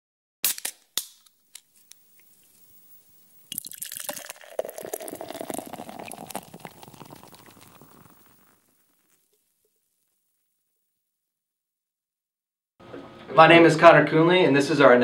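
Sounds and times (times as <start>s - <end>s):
soda fizzing: 1.5s - 10.1s
soda poured into a glass: 2.2s - 9.9s.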